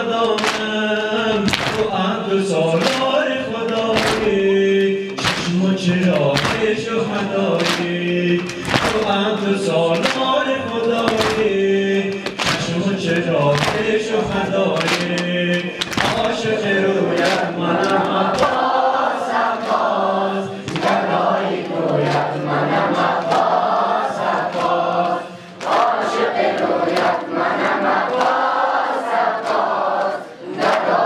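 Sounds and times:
man chanting through loudspeaker: 0.0 - 23.5
rhythmic chest-beating slaps: 0.0 - 31.0.

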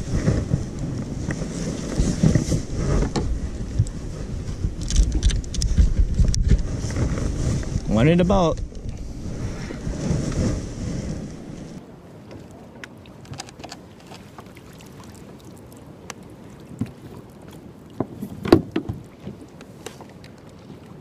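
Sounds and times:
water noise: 0.0 - 21.0
wind: 0.0 - 21.0
clicks and knocks of fishing tackle: 4.7 - 6.7, 12.8 - 14.3.

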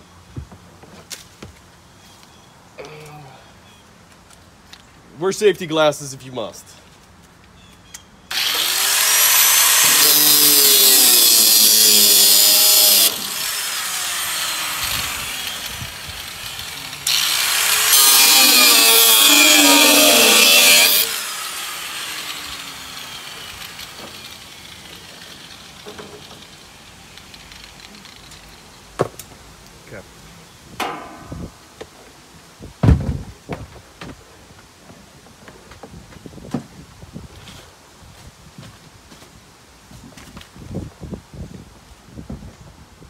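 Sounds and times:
angle grinder cutting metal: 8.3 - 28.2.

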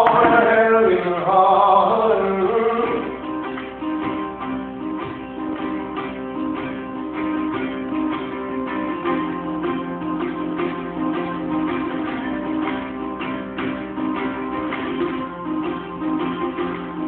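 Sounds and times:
person singing: 0.0 - 5.6
picked banjo playing: 0.0 - 17.0.

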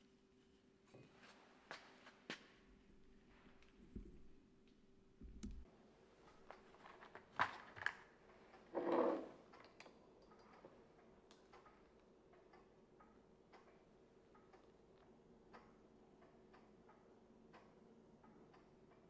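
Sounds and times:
bottle scraping on table: 8.7 - 9.3.

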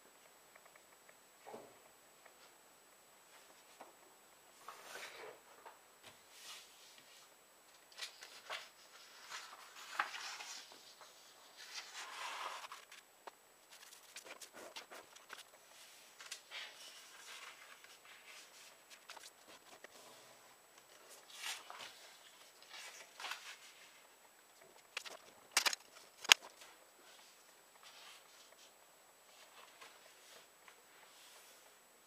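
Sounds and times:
paper rustling and folding: 6.4 - 28.7.

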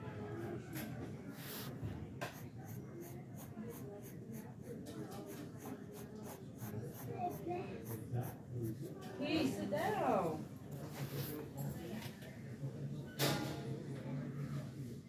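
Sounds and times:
pencil scratching on paper: 2.2 - 8.8.

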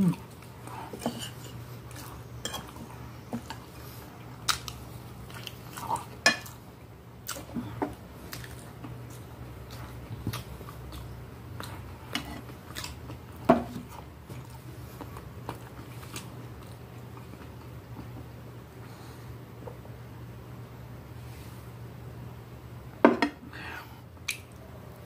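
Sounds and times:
chewing and mouth sounds: 0.0 - 6.6, 7.2 - 18.1.

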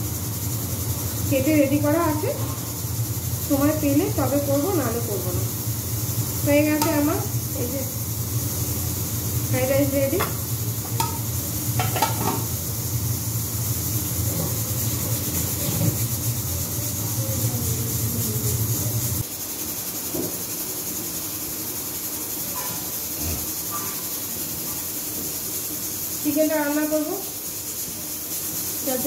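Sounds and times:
low mechanical hum: 0.0 - 29.0
steady hiss: 0.0 - 29.0
steel pot clinking: 10.0 - 12.5.

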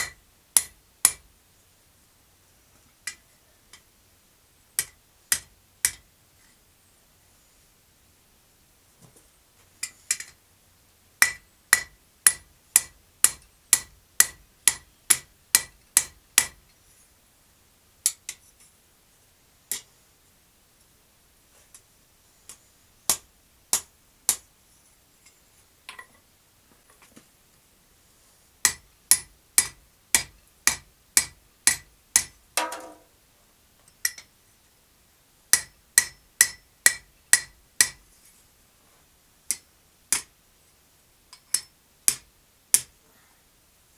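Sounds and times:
hammer striking steel on anvil: 11.2 - 16.6, 28.6 - 33.0, 35.5 - 38.0.

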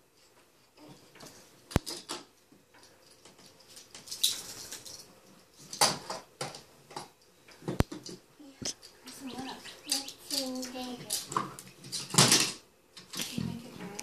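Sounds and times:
wooden toy trains clicking and scraping: 0.0 - 14.0
toys clattering: 1.0 - 13.7.

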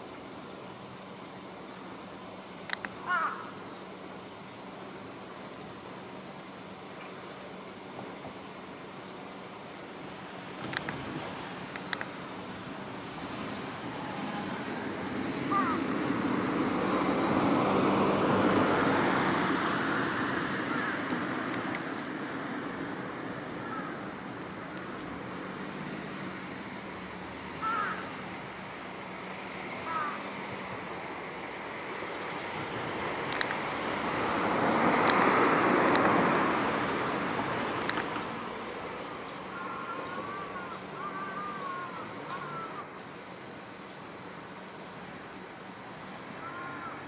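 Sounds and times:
vehicle passing: 12.4 - 42.7.

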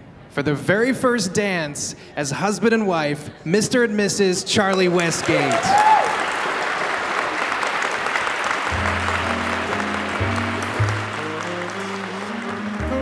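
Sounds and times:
crowd applauding: 4.7 - 13.0
slow music: 8.6 - 13.0.

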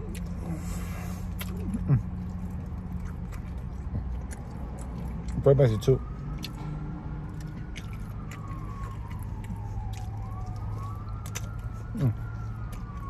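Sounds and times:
siren wailing: 4.0 - 13.0.

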